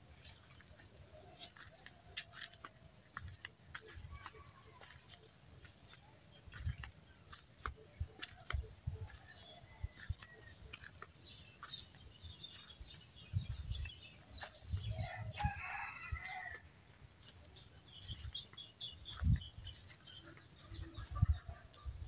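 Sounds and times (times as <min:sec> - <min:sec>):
small birds chirping: 0:00.0 - 0:22.0
rooster crowing: 0:15.0 - 0:16.6.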